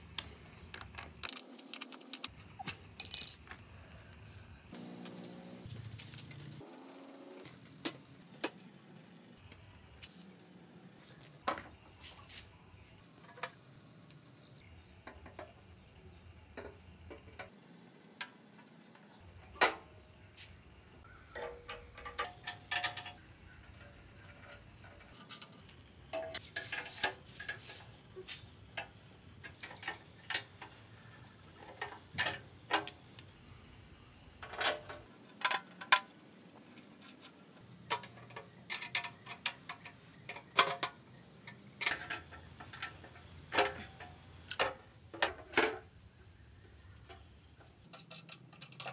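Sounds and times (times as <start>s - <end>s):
background hiss: 0.0s - 48.9s
clicks and knocks on bicycle parts: 21.4s - 23.2s.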